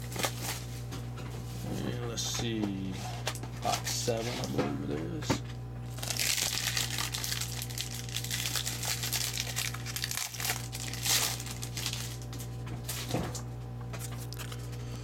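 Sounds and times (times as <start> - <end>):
plastic wrapping crinkling: 5.9 - 13.2.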